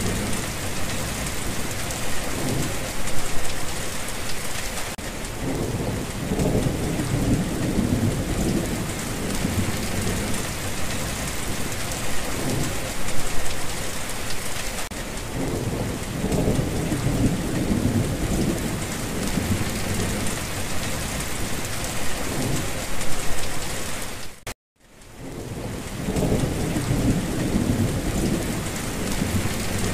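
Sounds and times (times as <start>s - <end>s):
thunder rumbling: 0.0s - 3.5s, 5.0s - 13.0s, 15.2s - 22.8s, 25.2s - 29.9s
heavy rain: 0.0s - 29.9s.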